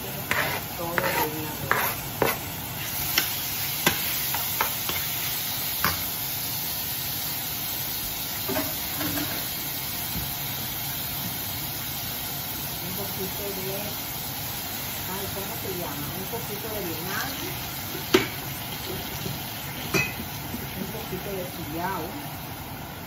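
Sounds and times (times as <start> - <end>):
utensil scraping a pan: 0.0 - 5.1
onion sizzling in oil: 0.0 - 23.0.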